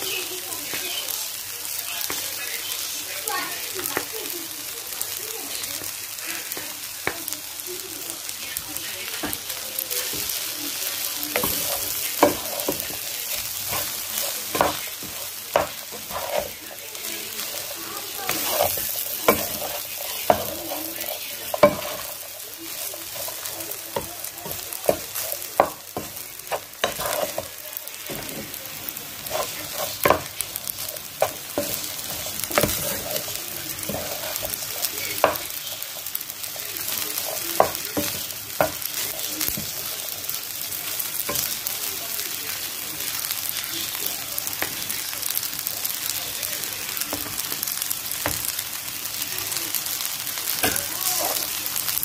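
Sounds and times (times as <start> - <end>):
frying sizzle: 0.0 - 52.0
spatula scraping a frying pan: 10.0 - 41.6, 50.5 - 51.6.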